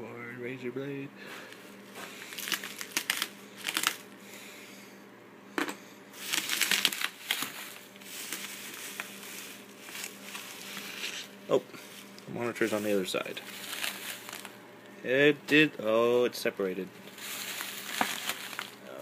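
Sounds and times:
bubble wrap crinkling: 2.1 - 4.1, 6.2 - 14.6, 17.0 - 19.0.

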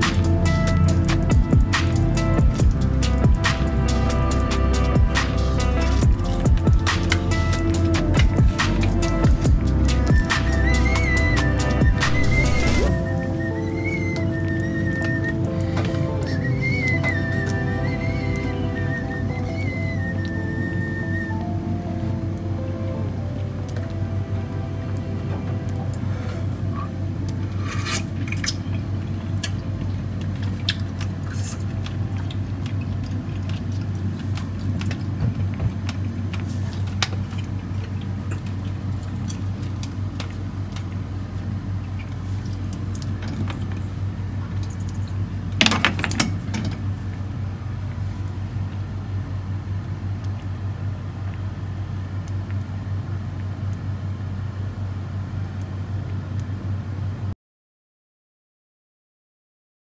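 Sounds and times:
steady low hum: 0.0 - 45.6.

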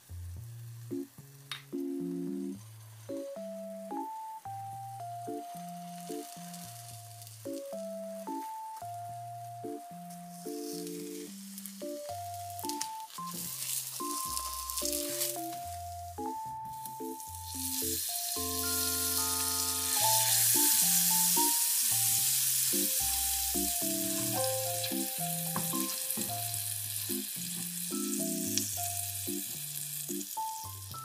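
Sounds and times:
light background music: 0.1 - 31.0
toast sizzling in butter: 5.2 - 8.7, 10.1 - 31.0.

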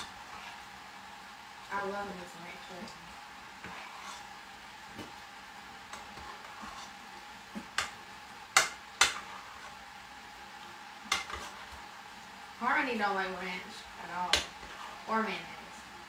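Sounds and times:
spoon stirring potato salad: 3.4 - 12.3, 14.1 - 15.1.

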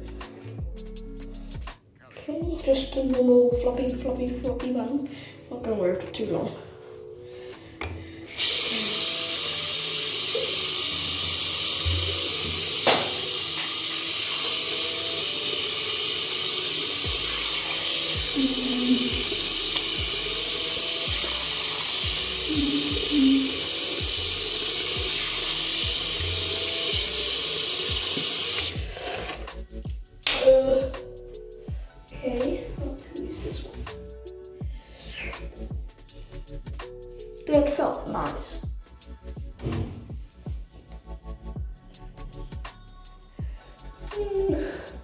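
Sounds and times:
tap running into basin: 10.1 - 29.4.

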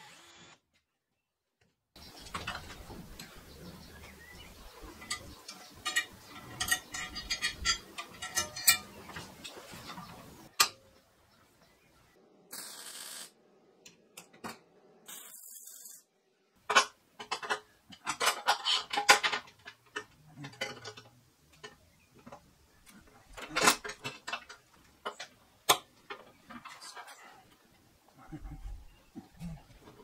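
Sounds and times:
metal frame clanking on tray: 4.9 - 10.8.

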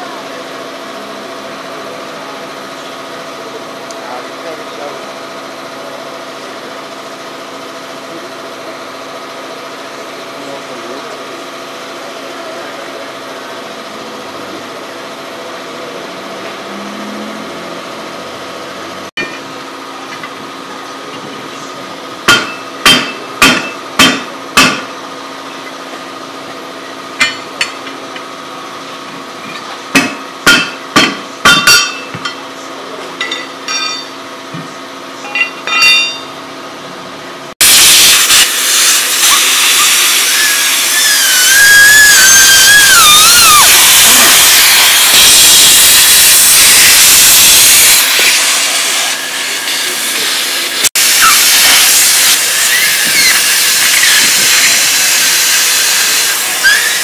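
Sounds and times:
steady mechanical hum: 0.0 - 57.0
hammer blows on metal: 22.2 - 24.9, 29.9 - 32.4
hiss of escaping air: 37.6 - 57.0
wavering high whistle: 39.3 - 46.0, 51.0 - 54.8, 55.4 - 57.0.

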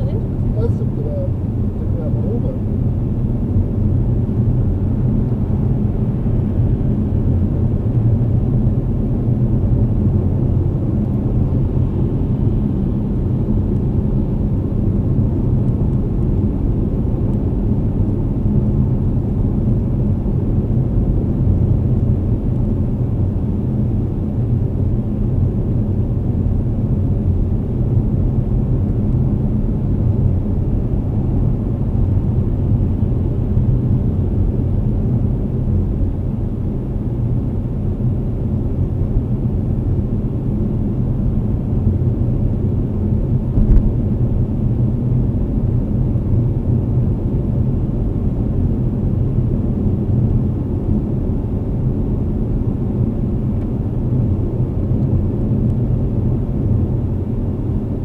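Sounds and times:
car cabin road noise: 0.0 - 7.4, 41.6 - 46.4.

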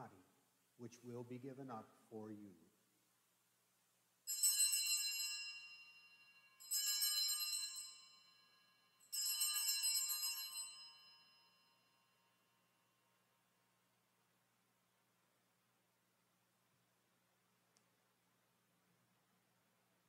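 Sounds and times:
altar bells ringing: 4.3 - 12.4.

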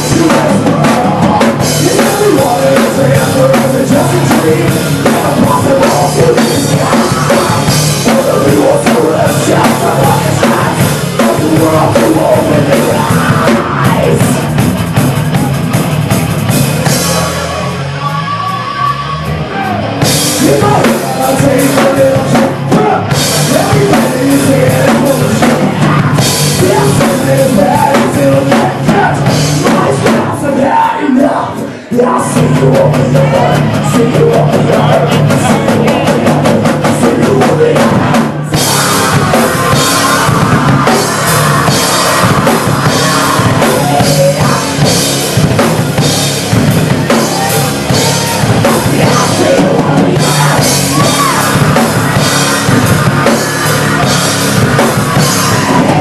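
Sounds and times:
person singing into a microphone: 0.0 - 14.4, 17.0 - 45.1, 46.8 - 56.0
distorted electric guitars: 0.0 - 56.0
drum kit with cymbals: 0.0 - 56.0.

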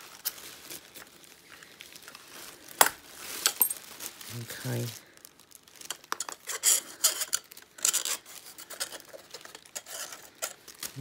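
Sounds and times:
plastic bag crinkling: 0.0 - 11.0
broken glass clinking and scraping: 2.8 - 3.9.

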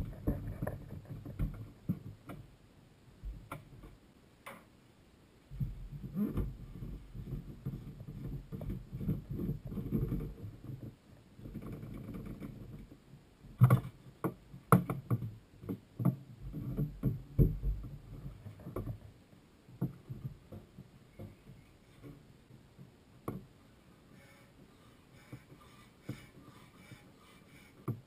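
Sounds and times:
hands rubbing plastic tank: 24.2 - 28.0.

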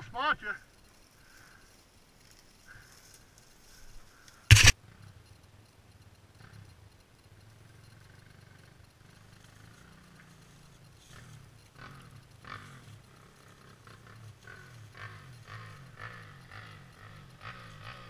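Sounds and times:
quad engine idling and revving: 4.5 - 5.3, 6.2 - 18.0.

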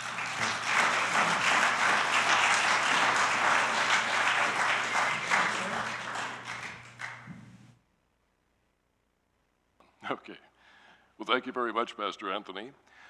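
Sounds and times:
congregation applauding: 0.0 - 7.8.

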